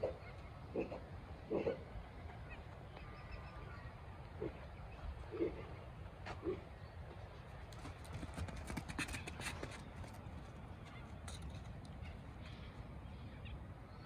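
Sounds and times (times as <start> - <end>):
hooves clicking on dirt: 5.6 - 12.9.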